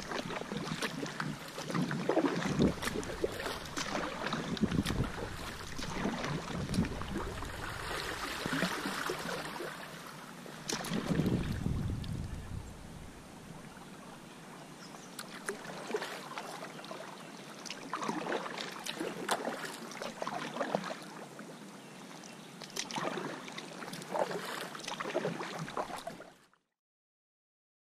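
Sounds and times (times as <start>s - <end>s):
kayak paddle splashing water: 0.0s - 13.9s, 15.1s - 21.2s, 22.6s - 26.4s.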